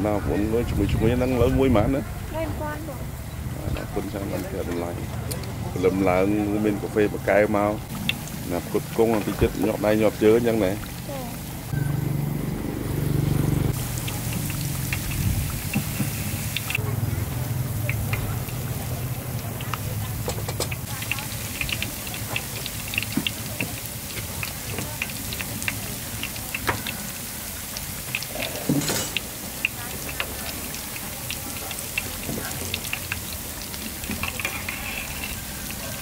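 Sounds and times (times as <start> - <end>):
steady hiss: 13.7 - 16.8.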